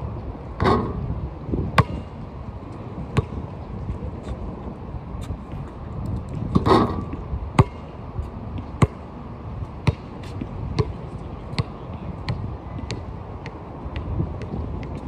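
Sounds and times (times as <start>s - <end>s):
wind noise: 0.0s - 15.0s
basketball bouncing on court: 1.8s - 2.1s, 3.1s - 3.4s, 7.6s - 7.9s, 8.6s - 9.0s, 9.8s - 15.0s.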